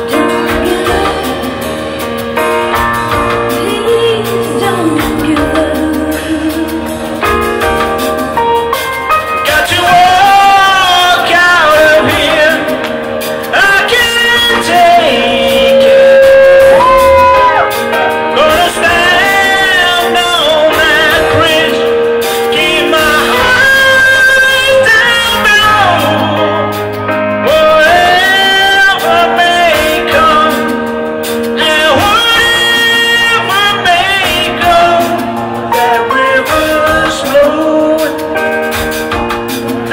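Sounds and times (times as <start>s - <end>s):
live band playing: 0.0s - 39.9s
man singing: 9.2s - 39.9s.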